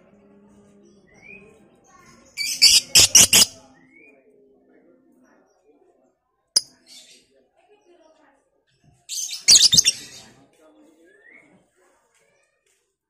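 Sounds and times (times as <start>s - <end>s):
lovebird chirping and squawking: 2.4s - 3.6s, 9.1s - 10.1s.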